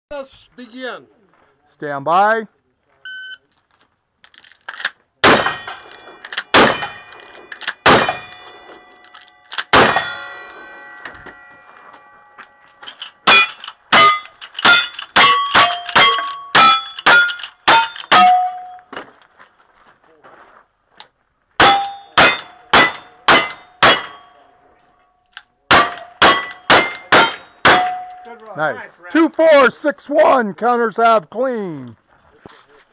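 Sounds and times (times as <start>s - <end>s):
rifle shots: 5.2s - 8.6s, 9.5s - 10.2s
shotgun shots: 5.2s - 8.6s, 9.6s - 10.2s, 13.3s - 18.6s, 21.6s - 24.2s, 25.7s - 28.1s
steel targets clanging: 5.2s - 18.9s, 21.6s - 24.5s, 25.7s - 28.5s.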